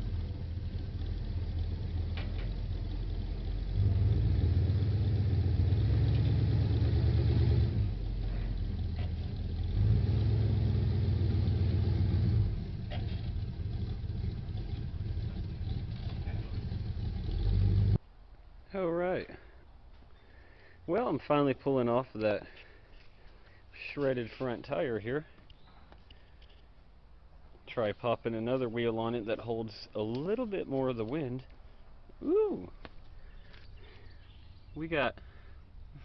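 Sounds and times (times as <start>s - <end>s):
pickup truck engine revving: 0.0s - 18.0s.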